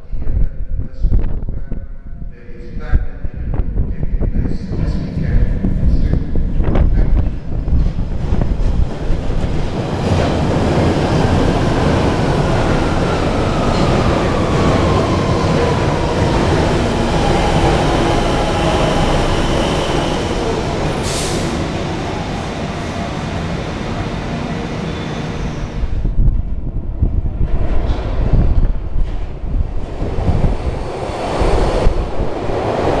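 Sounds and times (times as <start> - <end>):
train wheels rumbling on rails: 0.0 - 33.0
braking train whine: 10.3 - 25.9
train air hiss: 20.9 - 21.8.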